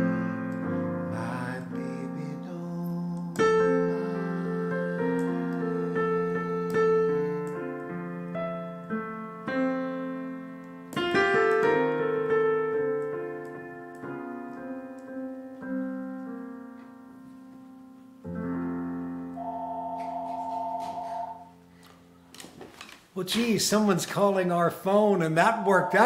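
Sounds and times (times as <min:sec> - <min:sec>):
solo piano chords: 0:00.0 - 0:22.3
telephone ringing: 0:19.4 - 0:21.6, 0:25.6 - 0:26.0.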